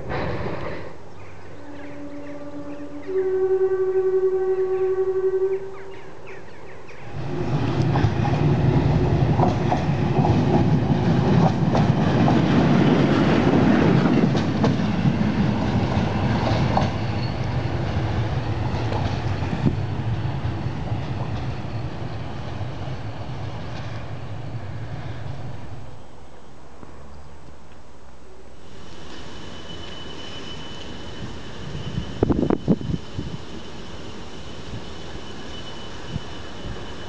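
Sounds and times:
diesel locomotive engine drone: 0.0 - 37.0
train wheels clicking over rail joints: 7.5 - 22.9.

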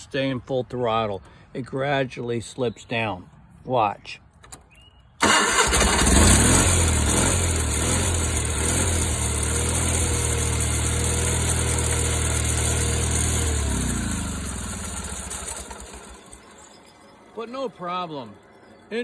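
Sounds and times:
garden tractor engine running: 5.2 - 19.0.

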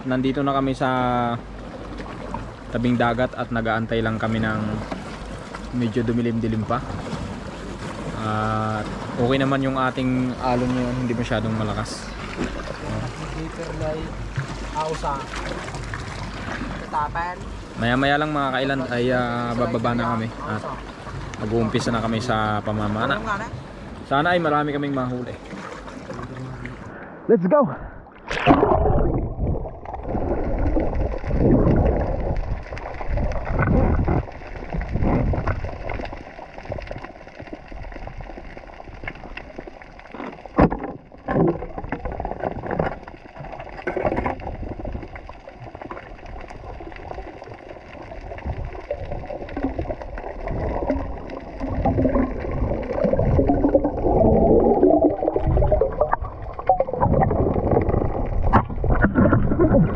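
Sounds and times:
muffled underwater rushing and bubbling: 0.0 - 59.9
splash into water: 28.2 - 36.1.

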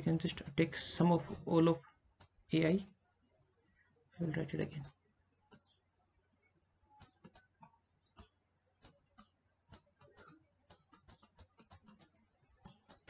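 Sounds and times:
pen clicks on whiteboard: 7.0 - 13.0.

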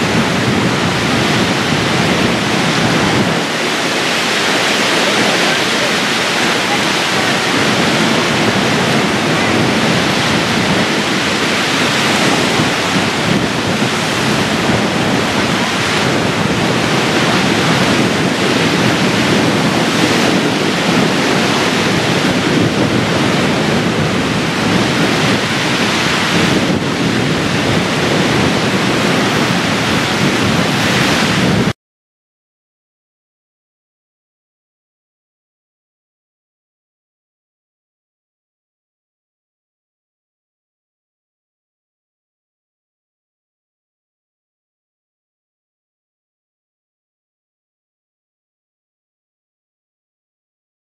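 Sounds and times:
choppy waves: 0.0 - 31.8
strong wind: 0.0 - 31.8.

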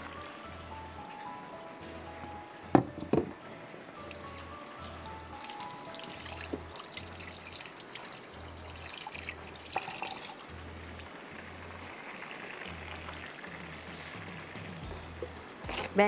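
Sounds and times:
oil popping: 2.6 - 16.0
chicken deep-frying in oil: 4.0 - 16.0.

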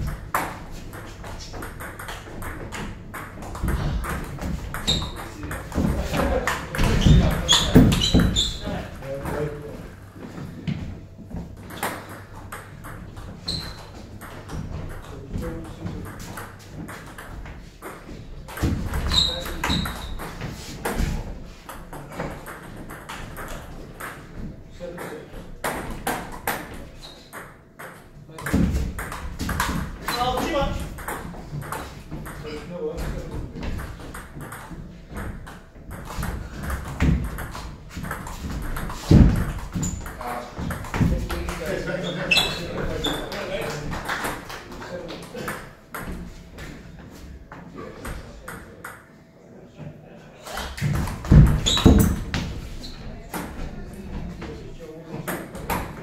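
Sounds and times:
ball bouncing on table: 0.0 - 8.6, 33.0 - 41.6, 50.7 - 52.6.

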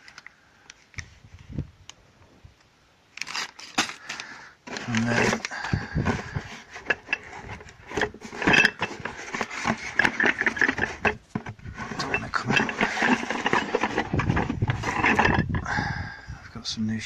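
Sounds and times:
cardboard box rustling: 4.7 - 15.6.

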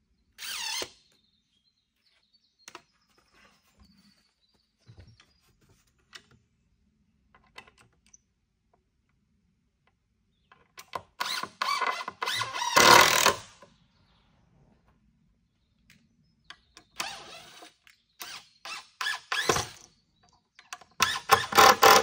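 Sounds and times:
power drill driving screw into wood: 0.4 - 1.0, 11.2 - 13.6, 17.0 - 19.9, 21.0 - 22.0.

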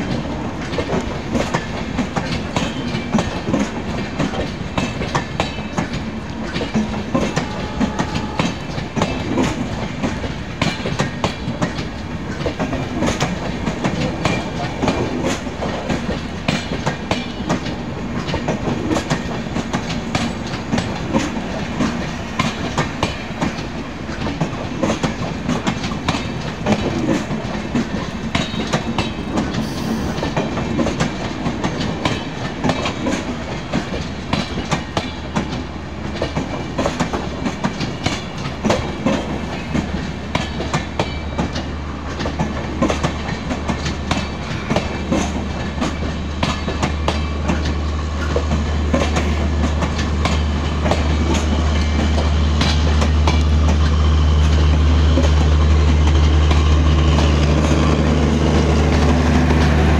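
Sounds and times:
continuous train rumble: 0.0 - 59.9
wheels clattering over rail joints: 30.2 - 59.8.

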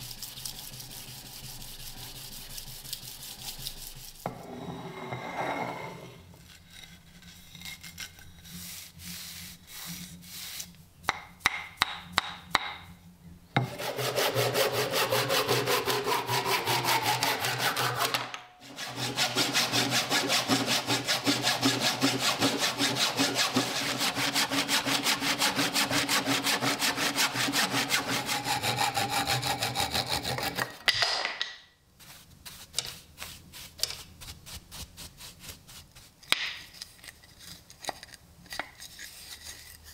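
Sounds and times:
sawdust brushing: 6.7 - 10.8, 13.6 - 30.6, 32.0 - 36.3
saw cutting through wood: 13.6 - 30.8.

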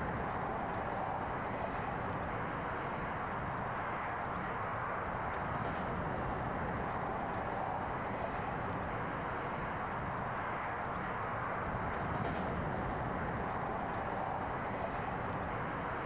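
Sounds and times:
diesel train running on rails: 0.0 - 16.0.

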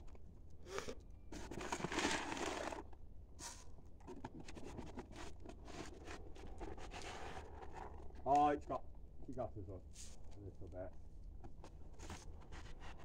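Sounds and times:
plastic bag rustling and crinkling: 1.3 - 8.3.

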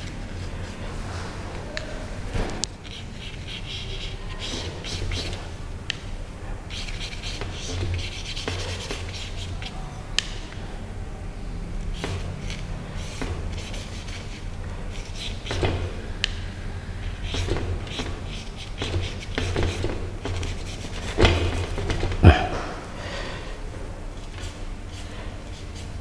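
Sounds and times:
paintbrush dabbing on paper: 17.1 - 22.3.

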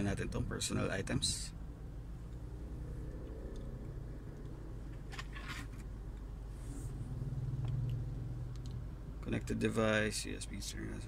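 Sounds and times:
low hum in vehicle cabin: 0.0 - 11.0
phone and cable rustling: 4.8 - 6.0.

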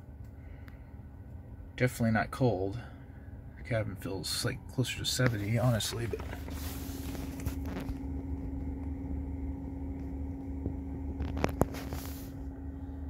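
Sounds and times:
car climate system humming: 0.0 - 13.0
short rustle: 5.3 - 8.0, 11.2 - 12.4.

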